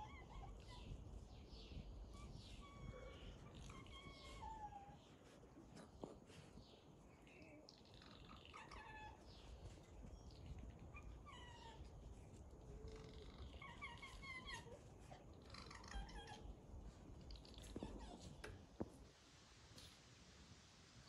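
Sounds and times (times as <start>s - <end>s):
small animal squeaky calls: 2.1s - 5.0s, 7.9s - 9.2s, 12.9s - 14.8s, 15.4s - 16.5s, 17.4s - 18.5s.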